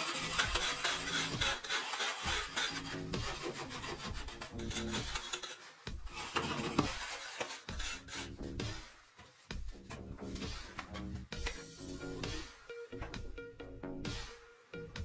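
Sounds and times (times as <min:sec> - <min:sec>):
hand tools scraping earth: 0:00.0 - 0:12.2.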